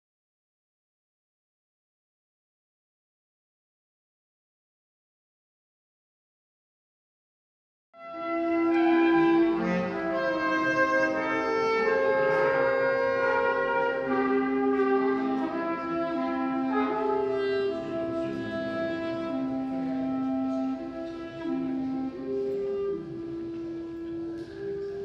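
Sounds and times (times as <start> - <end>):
wind ensemble long held notes: 8.0 - 25.0.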